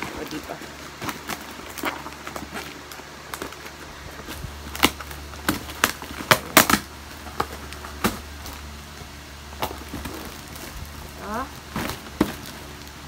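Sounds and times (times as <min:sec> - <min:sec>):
plastic packaging crackling: 0:00.0 - 0:13.0.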